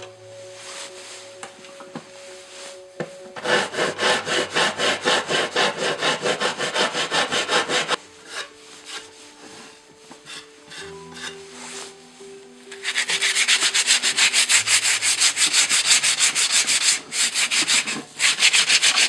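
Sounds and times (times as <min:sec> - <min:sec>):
metal file rasping on wood: 0:03.4 - 0:09.2, 0:10.1 - 0:11.5, 0:12.8 - 0:19.0.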